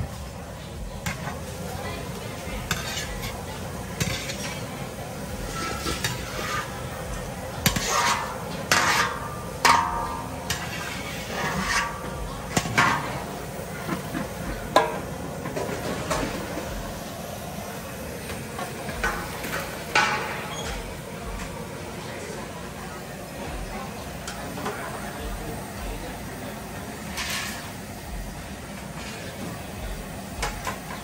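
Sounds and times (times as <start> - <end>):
frying sizzle: 0.0 - 31.0
metal ladle scraping wok: 1.0 - 21.6, 26.6 - 31.0.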